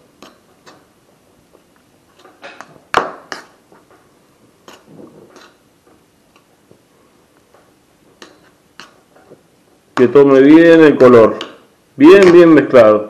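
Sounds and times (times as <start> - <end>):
knife scraping a bowl: 0.2 - 0.9, 3.3 - 3.6, 4.6 - 5.6, 8.2 - 9.4.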